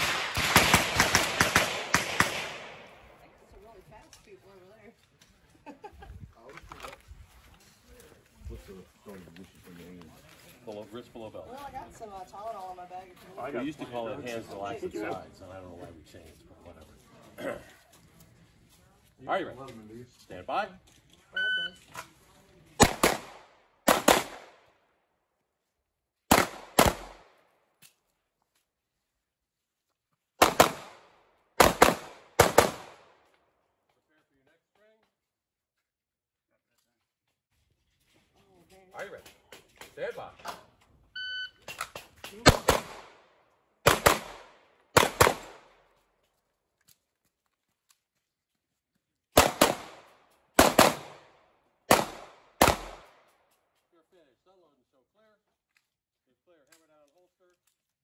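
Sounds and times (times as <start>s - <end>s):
pistol shots: 0.0s - 2.9s, 22.8s - 24.6s, 26.3s - 27.3s, 30.4s - 33.1s, 42.4s - 43.2s, 43.8s - 45.7s, 49.4s - 51.3s, 51.9s - 53.2s.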